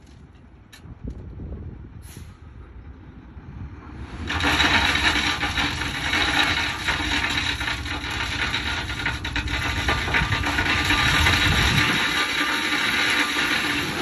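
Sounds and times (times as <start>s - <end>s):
truck engine rumbling: 0.0s - 14.0s
rock sliding and rattling: 4.2s - 14.0s.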